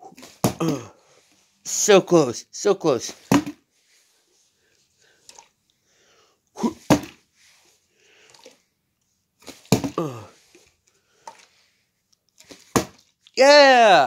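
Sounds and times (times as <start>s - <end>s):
plastic bottle landing on carpet: 3.2s - 3.6s, 6.8s - 7.2s, 9.4s - 10.0s, 12.4s - 13.1s.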